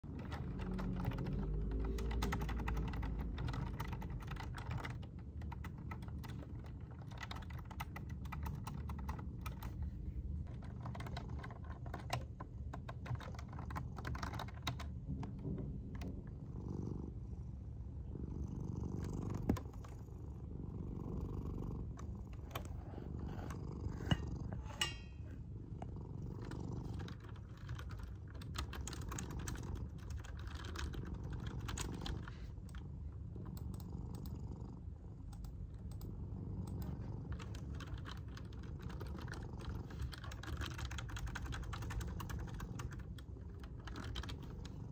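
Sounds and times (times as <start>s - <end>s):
cat purring: 0.0s - 44.9s
computer keyboard typing: 0.1s - 9.8s, 10.4s - 16.2s, 26.4s - 32.8s, 35.3s - 44.9s.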